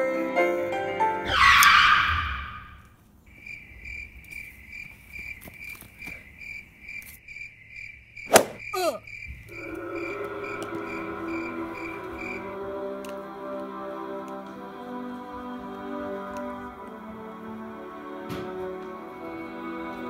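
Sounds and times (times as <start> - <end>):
music: 0.0 - 1.6, 9.5 - 20.0
cricket chirping: 1.4 - 13.1, 19.0 - 20.0.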